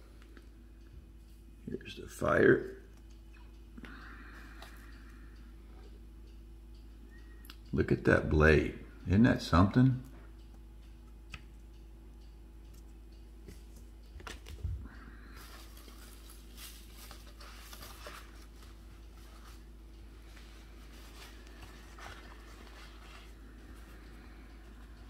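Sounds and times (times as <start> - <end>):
low steady hum: 0.0 - 25.0
soft rustling: 15.4 - 24.0.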